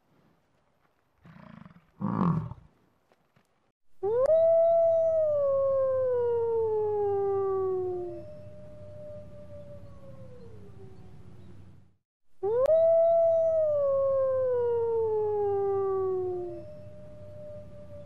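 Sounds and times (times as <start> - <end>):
wolf howling: 4.1 - 11.2.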